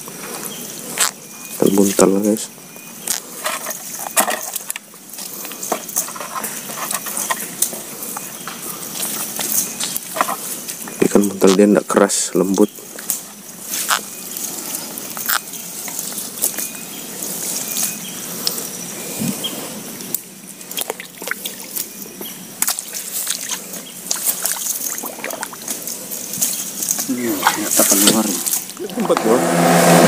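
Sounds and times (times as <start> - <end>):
small clicks and crackles: 3.0 - 11.7, 12.9 - 18.7
water dripping and trickling: 20.1 - 29.2.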